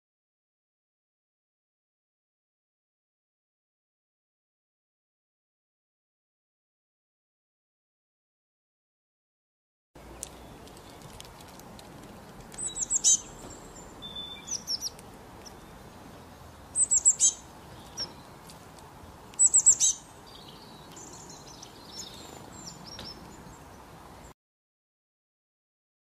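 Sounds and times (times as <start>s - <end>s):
songbird high chirps: 10.0s - 11.2s, 12.5s - 18.5s, 19.3s - 24.3s
faint bird twittering: 12.6s - 18.4s, 19.4s - 23.9s.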